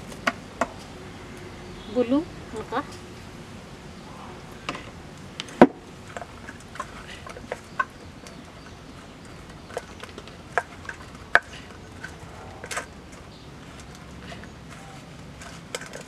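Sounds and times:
vegetable pieces clattering on steel plate: 0:06.1 - 0:16.0.

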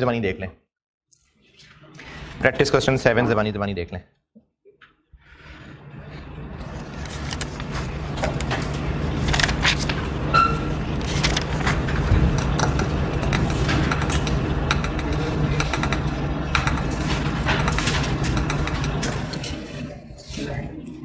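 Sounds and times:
low mechanical hum: 0:05.2 - 0:21.0.

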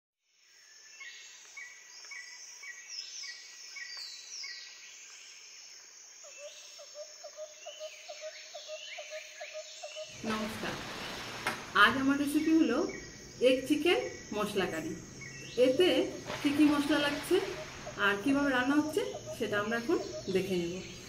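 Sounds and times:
high insect trill: 0:05.4 - 0:21.0
falling bird whistles: 0:16.0 - 0:20.7.

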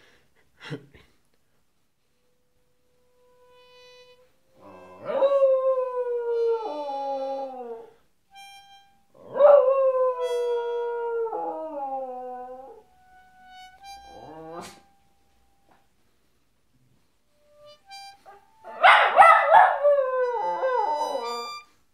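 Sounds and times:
short steady tones: 0:02.2 - 0:04.6
dog howling: 0:04.6 - 0:07.9.

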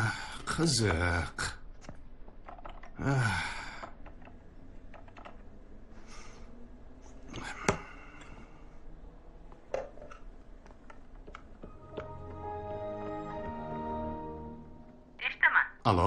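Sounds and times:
computer keyboard clicks: 0:03.8 - 0:05.4.

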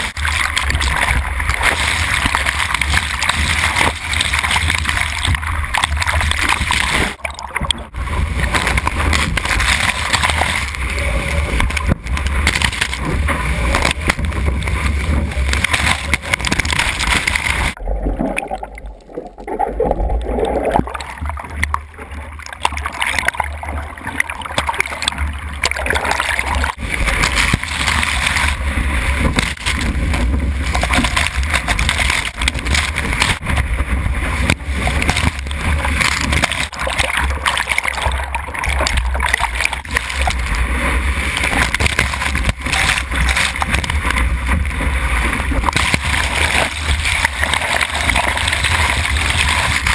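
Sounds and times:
water rushing and splashing: 0:00.0 - 0:49.9
heavy low rumble: 0:04.8 - 0:22.6.

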